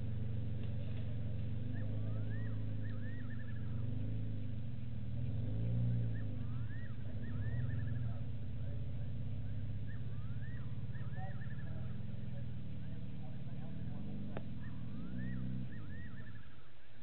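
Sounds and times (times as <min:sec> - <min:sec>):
low engine hum: 0:00.0 - 0:17.0
bird whistling call: 0:01.7 - 0:04.0, 0:05.8 - 0:08.2, 0:09.5 - 0:12.0, 0:14.5 - 0:16.9.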